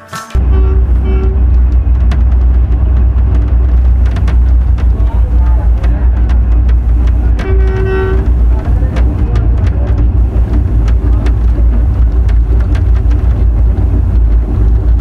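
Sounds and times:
train low rumble: 0.3 - 15.0
sharp clicks of train wheels: 0.4 - 15.0.

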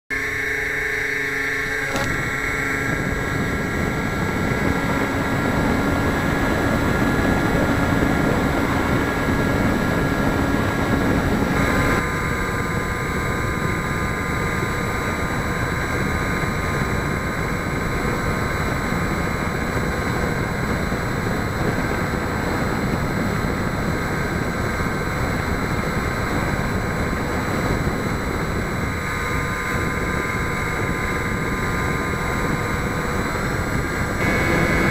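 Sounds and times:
model plane motor whine: 0.1 - 34.9
air rushing: 1.7 - 12.0.

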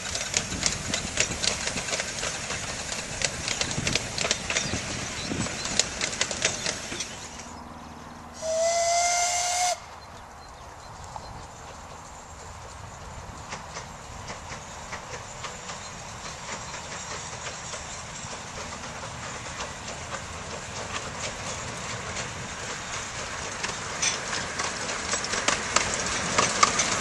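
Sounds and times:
train wheels clicking on track: 0.0 - 7.6, 8.4 - 27.0
steam whistle: 8.4 - 9.9.

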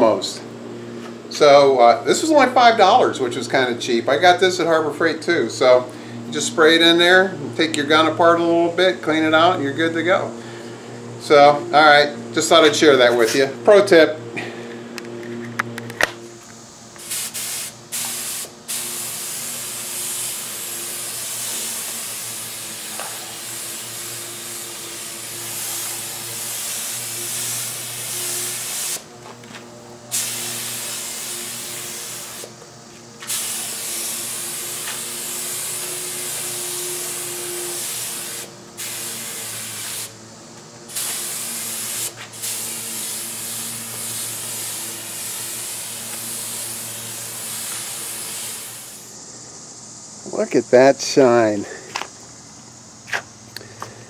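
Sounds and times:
steady low hum: 0.0 - 54.0
spray gun hissing: 16.7 - 29.1, 30.0 - 51.9.

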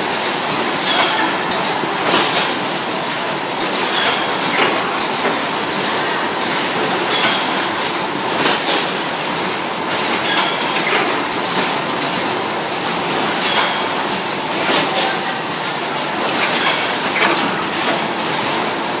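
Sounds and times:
conveyor clattering with metal clicks: 0.5 - 18.8
short high machine squeak: 0.8 - 1.4, 3.9 - 4.6, 7.1 - 7.7, 10.2 - 10.8, 13.4 - 14.0, 16.5 - 17.0.

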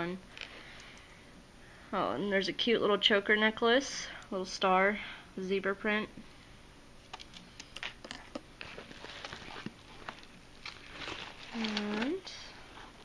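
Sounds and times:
woman speaking: 0.0 - 0.2, 1.9 - 6.2, 11.5 - 12.6
rustling of small items: 7.1 - 13.0.

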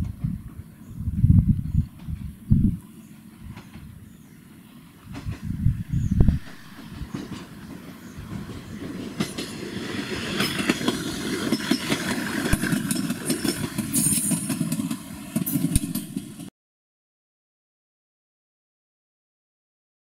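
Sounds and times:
train wheels clattering over rail joints: 4.9 - 16.5.

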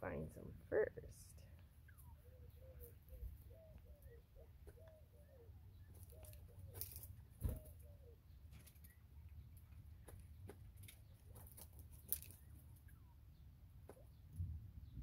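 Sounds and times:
quail calls: 1.9 - 8.3
birds tapping and rustling in straw: 5.8 - 13.0.

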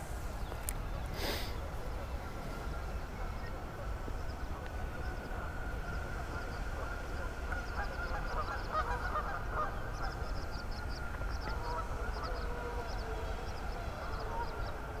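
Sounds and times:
geese honking: 3.2 - 15.0.

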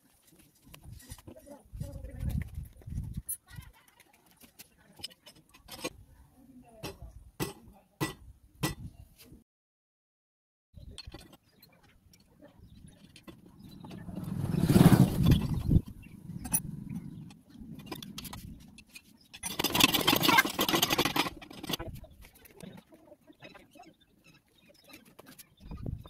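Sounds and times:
hand pump working: 17.8 - 22.0.

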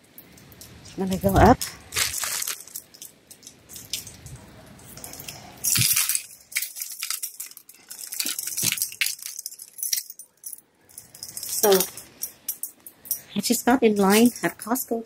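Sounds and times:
jacket and plastic bag rustling: 1.1 - 4.3, 4.9 - 10.0, 11.1 - 12.3
small clicks and clinks: 5.0 - 14.8.

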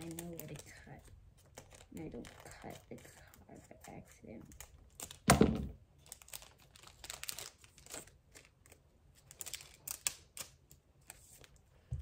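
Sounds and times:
wrapper crinkling and rustling: 0.0 - 11.6.

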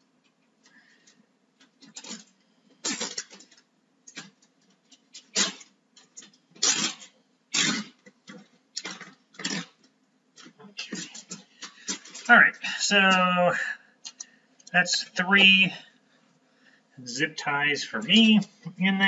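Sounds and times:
zip tie zipping: 6.6 - 8.0.

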